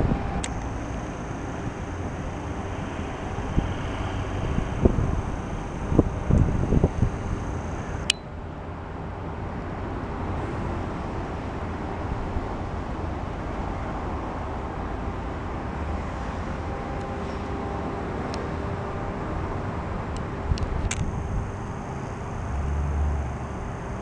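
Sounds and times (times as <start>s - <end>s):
distant road traffic rumble: 0.0s - 24.0s
sharp click: 20.6s - 21.1s.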